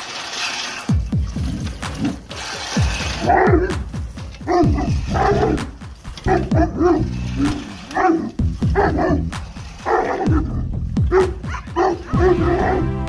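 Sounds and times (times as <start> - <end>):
dog growling: 3.1 - 13.0
dog barking deeply: 3.2 - 3.8, 4.4 - 13.0.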